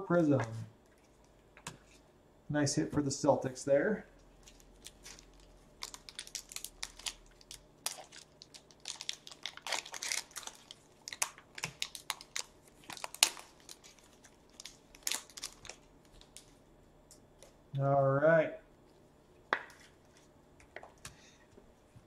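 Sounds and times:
plastic wrapper rustling: 4.2s - 16.6s.

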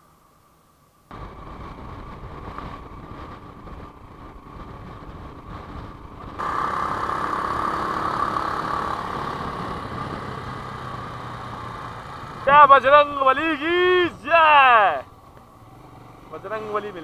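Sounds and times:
wind noise: 1.1s - 6.6s, 8.6s - 11.4s
motorcycle engine: 1.1s - 17.0s.

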